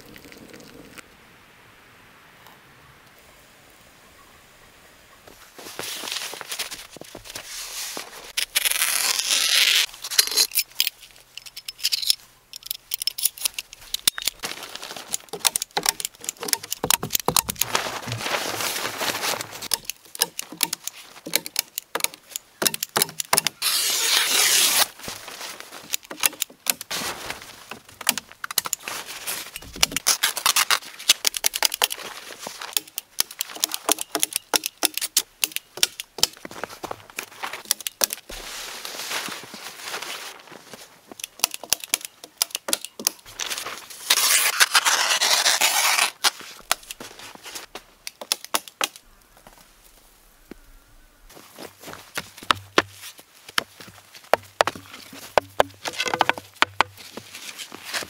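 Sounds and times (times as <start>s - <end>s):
footsteps in snow: 5.3s - 8.4s, 14.4s - 15.4s, 17.6s - 19.7s, 23.6s - 26.0s, 26.9s - 29.7s, 31.9s - 32.8s, 36.4s - 37.6s, 38.3s - 41.2s, 43.3s - 48.0s, 51.2s - 58.0s
membrane rustling and crinkling: 5.6s - 22.4s, 23.0s - 34.3s, 36.1s - 42.1s, 43.0s - 48.1s
sharp clicks and knocks: 15.1s - 17.7s, 19.7s - 23.6s, 25.9s - 26.9s, 32.7s - 36.4s, 41.2s - 43.3s, 54.3s - 57.0s.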